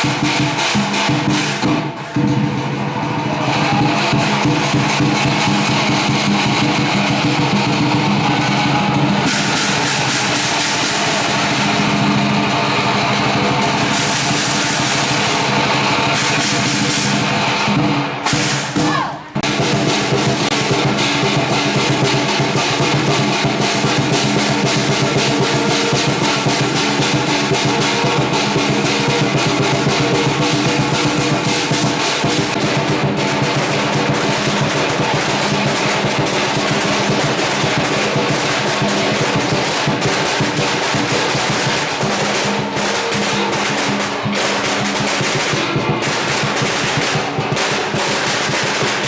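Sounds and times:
small drums in fast roll: 0.0 - 49.0.

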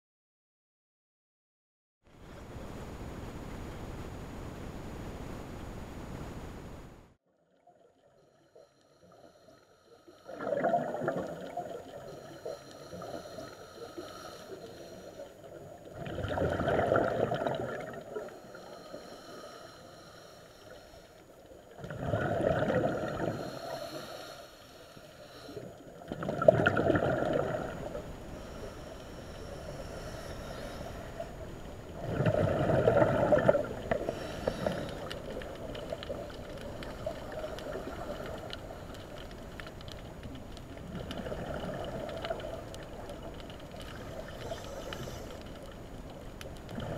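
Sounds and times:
water noise: 2.1 - 46.9
underwater breath bubbles: 8.0 - 39.4, 40.8 - 45.8, 46.7 - 46.9.

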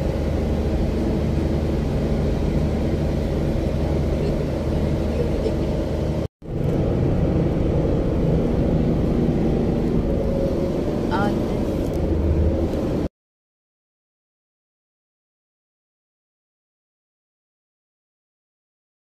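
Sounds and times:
car engine and tyres rumbling: 0.0 - 13.1.

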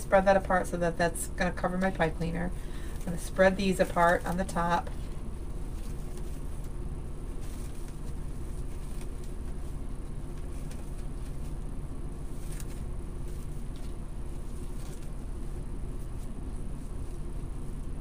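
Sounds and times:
low background hum: 0.0 - 18.0
rustling of mesh and ribbon: 1.8 - 18.0.

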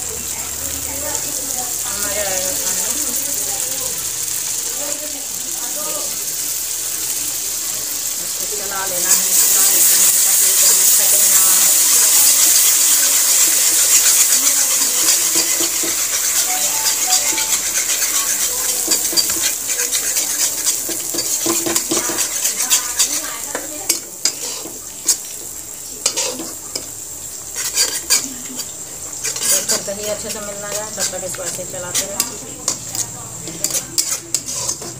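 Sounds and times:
masala sizzling in a pan: 0.0 - 34.9
spatula scraping and knocking pan: 12.9 - 25.3, 26.0 - 26.9, 27.6 - 34.9.

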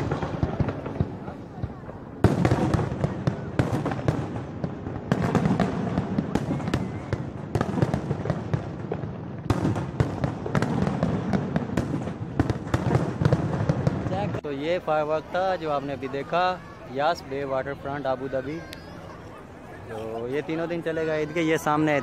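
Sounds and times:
fireworks bursts and crackles: 0.0 - 22.0.

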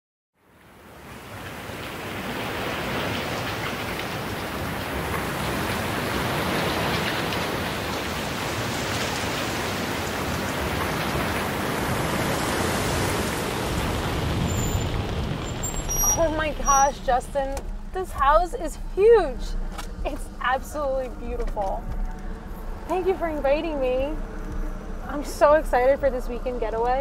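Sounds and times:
steady rain falling: 0.5 - 27.0.

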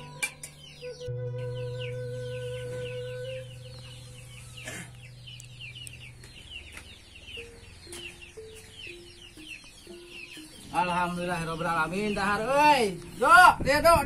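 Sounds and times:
chicks peeping: 0.0 - 14.0
soft background music: 0.0 - 14.0.

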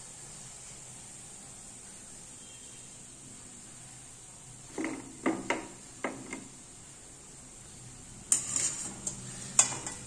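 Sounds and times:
strainer scraping in frying oil: 4.7 - 6.6, 8.2 - 10.0
wire strainer knocking and clinking: 8.3 - 10.0.

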